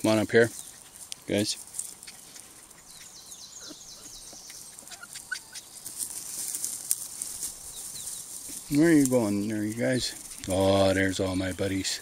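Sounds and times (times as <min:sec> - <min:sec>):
footsteps through dry leaves: 0:05.7 - 0:11.6.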